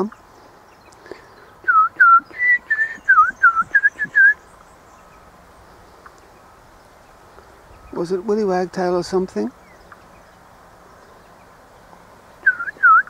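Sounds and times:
person whistling: 1.7 - 4.4, 12.4 - 13.0.

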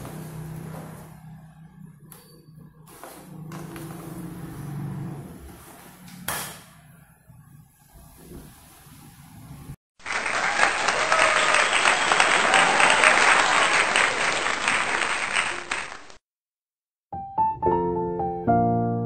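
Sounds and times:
crowd applause: 10.0 - 16.2
piano tune: 17.1 - 19.0.

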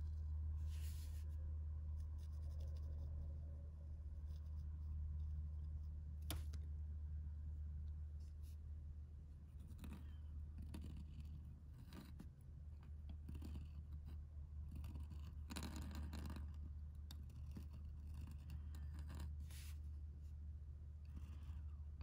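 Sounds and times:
pen nib scratching paper: 2.0 - 3.2, 4.2 - 6.5, 9.4 - 22.0.

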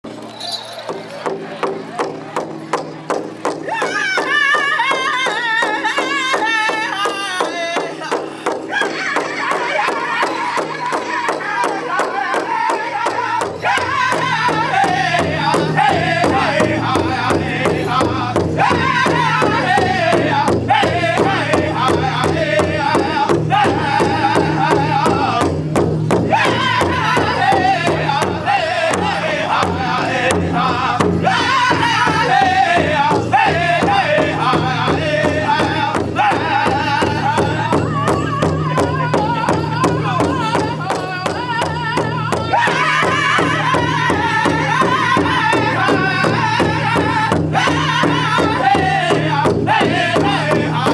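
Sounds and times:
large drum steady beat: 0.9 - 50.9
men singing in unison: 3.7 - 50.9.

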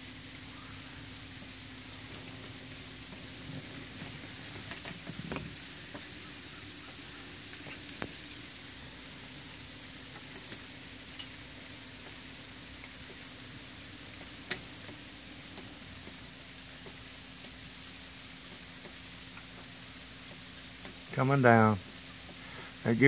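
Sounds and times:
wet snow falling hiss: 0.0 - 23.0
light ticks: 14.1 - 17.6, 18.5 - 21.2.

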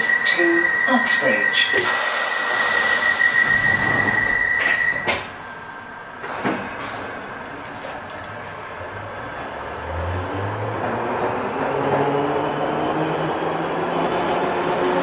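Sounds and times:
steady high warning tone: 0.0 - 8.1
station noise: 0.0 - 15.0
train doors shutting knock: 1.8 - 5.4, 6.2 - 8.3.

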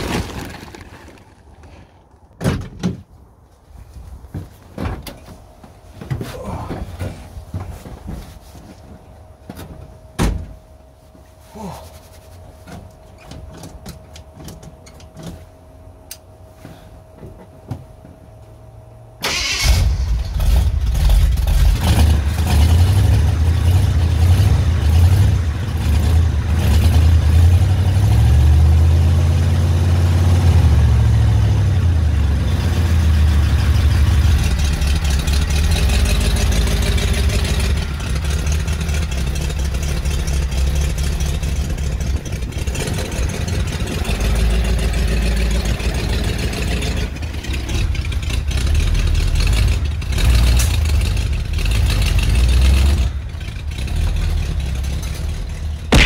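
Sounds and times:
car engine starting and idling: 18.8 - 56.0.

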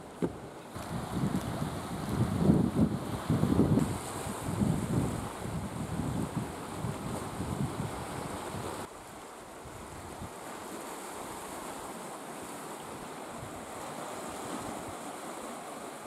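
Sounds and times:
waves washing over rocks: 0.0 - 16.0
wind rumbling on microphone: 0.2 - 10.6.

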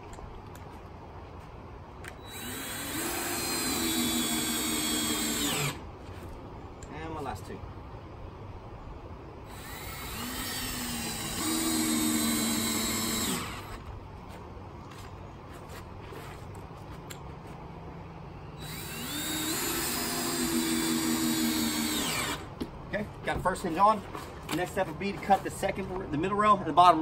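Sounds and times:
cordless drill driving screws: 2.1 - 5.8, 9.5 - 13.9, 18.6 - 22.5.

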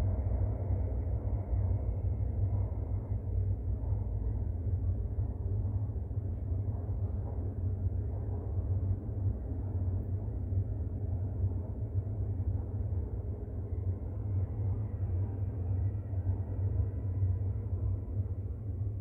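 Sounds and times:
metro train rumbling in tunnel: 0.0 - 19.0
faint high whine: 9.6 - 19.0.

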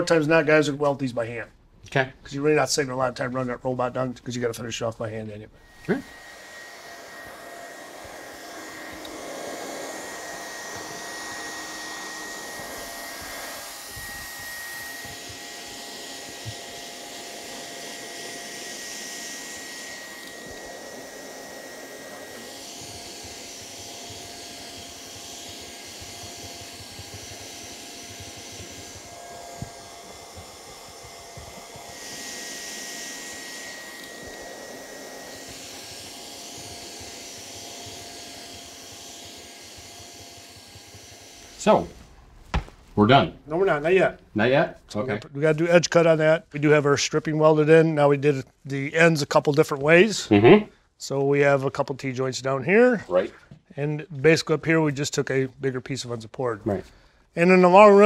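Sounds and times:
hot-air blower hissing: 5.6 - 42.9.

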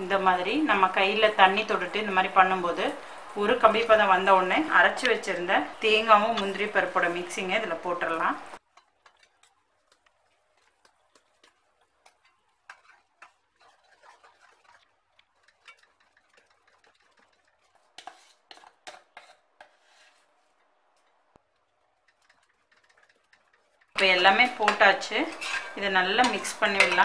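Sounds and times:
spoon clinking and scraping pan: 4.9 - 20.2, 22.0 - 27.0.

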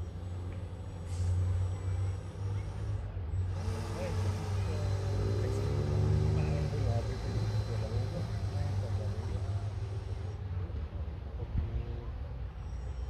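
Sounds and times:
model boat motors humming: 0.0 - 10.8.

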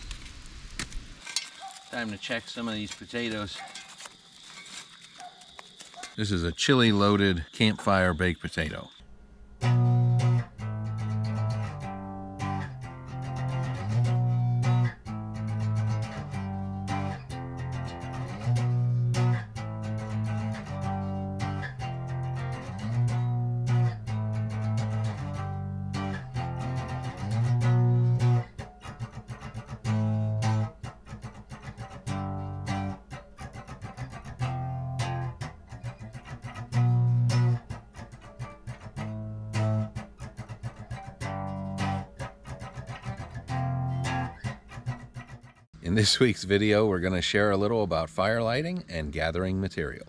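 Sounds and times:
plucked guitar notes: 9.5 - 45.6.

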